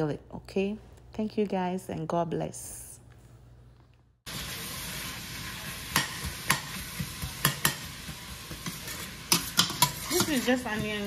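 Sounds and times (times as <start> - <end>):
onions sizzling in a pot: 4.3 - 11.0.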